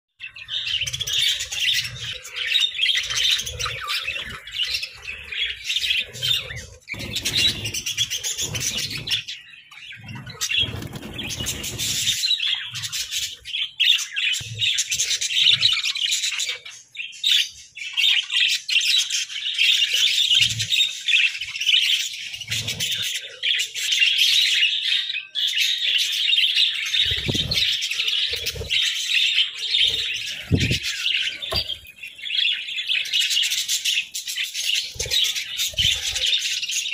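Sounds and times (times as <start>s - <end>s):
budgerigars chirping: 0.2s - 36.9s.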